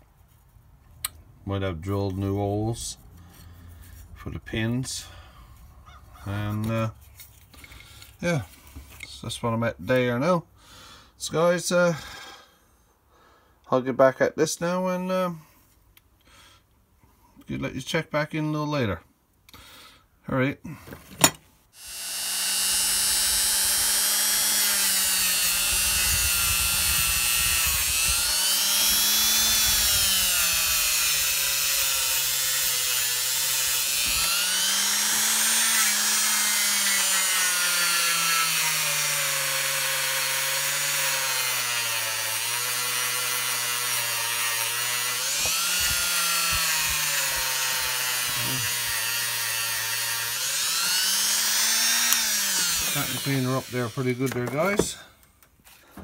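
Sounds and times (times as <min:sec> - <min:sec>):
power tool grinding metal: 0:21.8 - 0:55.1.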